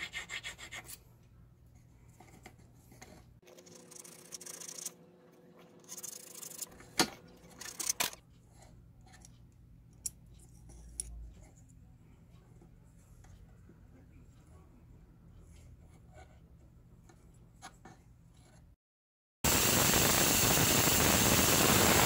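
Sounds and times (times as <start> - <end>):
metal parts scraping: 7.4 - 8.2.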